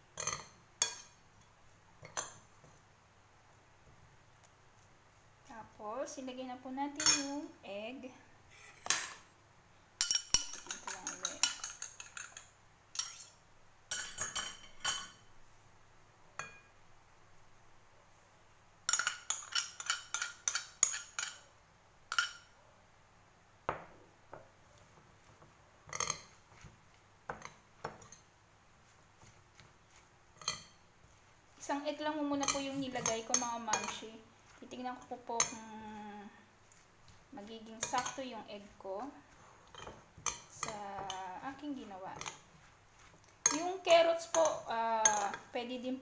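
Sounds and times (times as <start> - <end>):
spoon clinking on glass bowl: 10.0 - 15.2, 43.4 - 43.7.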